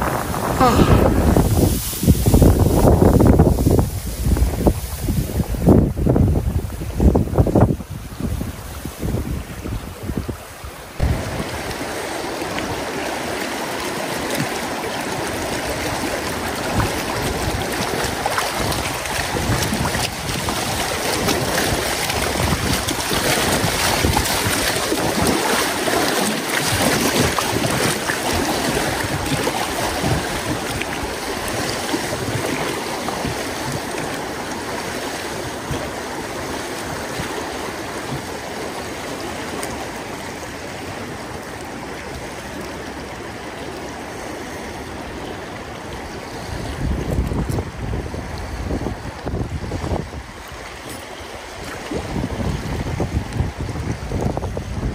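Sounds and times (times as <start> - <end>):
river water rushing and splashing: 0.0 - 54.9.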